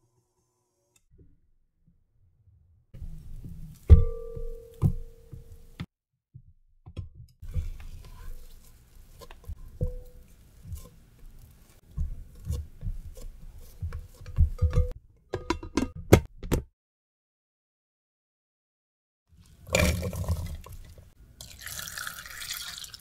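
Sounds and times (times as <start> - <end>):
glass bowl ringing: 4.0 - 5.7
spatula scraping dough in bowl: 7.4 - 14.6.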